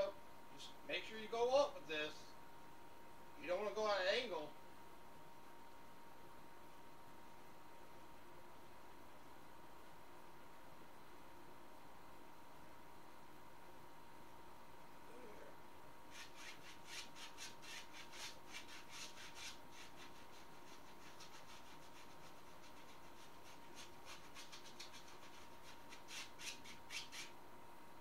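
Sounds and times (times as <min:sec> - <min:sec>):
faint high whine: 0:00.0 - 0:17.0
brush scrubbing on canvas: 0:16.1 - 0:27.3.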